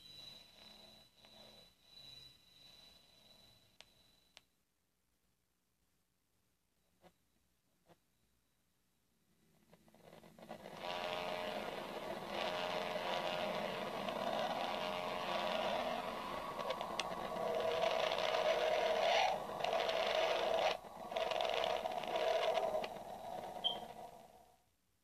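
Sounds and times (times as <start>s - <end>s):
static hiss: 10.1s - 24.5s
wavering hum: 10.6s - 24.5s.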